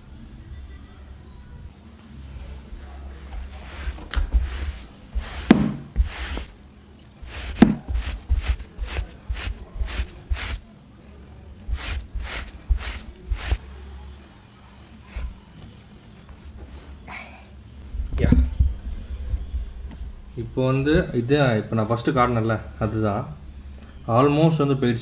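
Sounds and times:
brush swishing on fabric: 2.8s - 6.5s, 7.2s - 10.6s, 11.7s - 13.6s
thumps: 3.4s - 6.5s, 7.2s - 10.6s.

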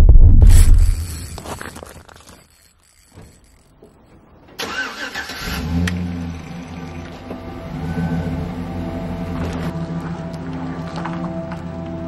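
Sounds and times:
pickup truck engine starting: 4.6s - 9.8s.

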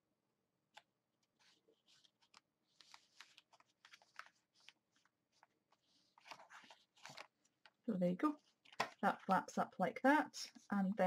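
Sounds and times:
paper rustling: 0.7s - 9.3s.

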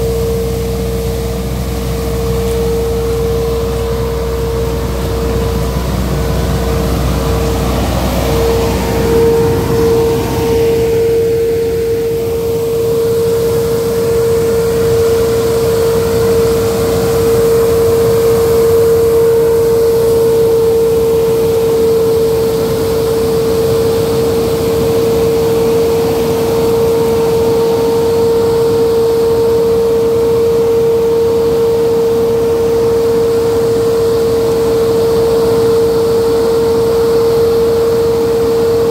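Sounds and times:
low rumble: 0.0s - 21.2s
nut sweeper machine whine: 0.0s - 38.9s.

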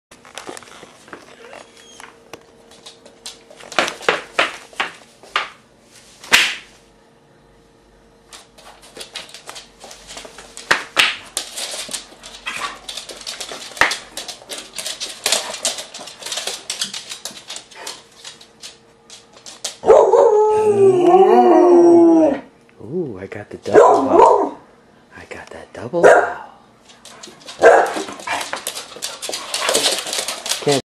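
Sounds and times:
faint steady hum: 0.2s - 30.6s
dog yelping: 1.3s - 2.2s, 23.7s - 24.6s
dogs whimpering and yipping: 1.3s - 2.2s
dog claws clicking on wood: 8.8s - 19.8s, 26.9s - 30.8s.

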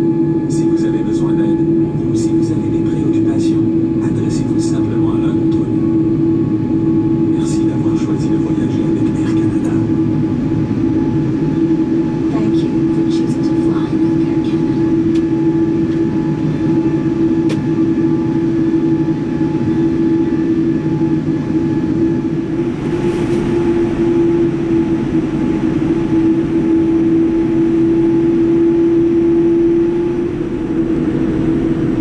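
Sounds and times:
aircraft cabin drone: 0.0s - 32.0s
rushing air noise: 22.0s - 28.4s.

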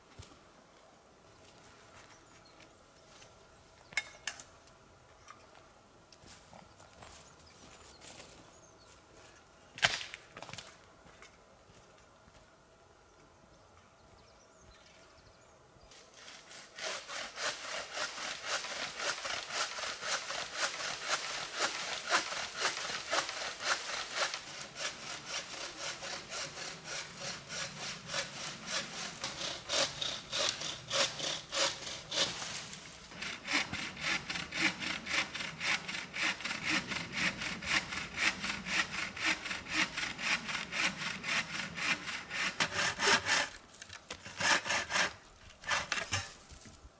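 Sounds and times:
hand saw cutting wood: 16.0s - 46.4s.

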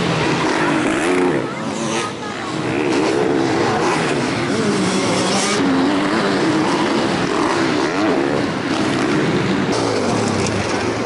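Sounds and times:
motorcycle engines revving: 0.0s - 11.0s.

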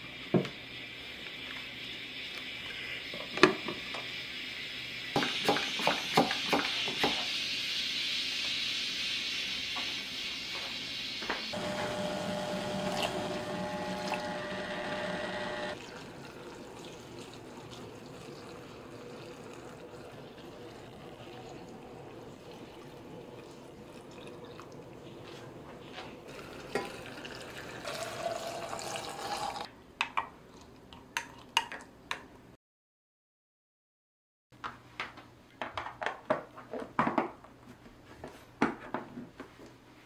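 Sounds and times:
liquid pouring into jars: 26.3s - 29.7s.

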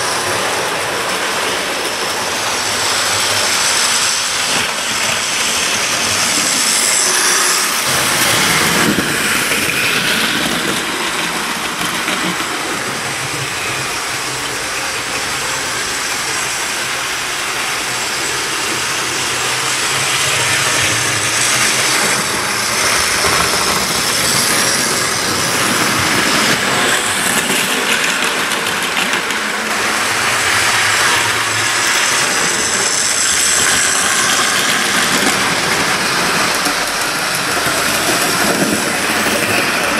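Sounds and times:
model train rattling on rails: 0.0s - 39.9s.

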